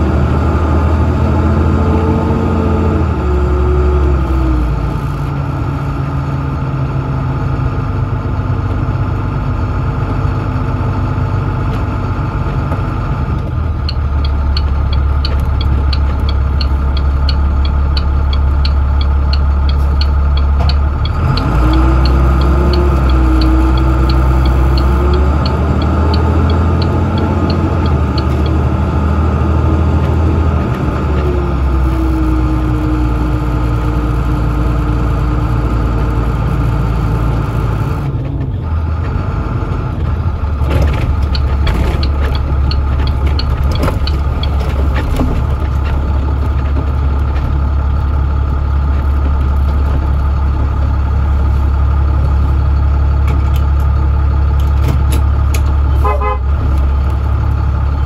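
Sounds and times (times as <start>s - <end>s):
diesel bus engine running: 0.0s - 58.0s
quick regular ticking: 13.8s - 28.7s, 41.1s - 50.5s.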